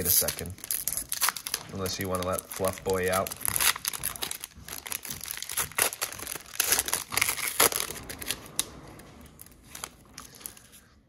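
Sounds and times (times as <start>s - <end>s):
foil wrapper tearing and crinkling: 0.0s - 8.6s.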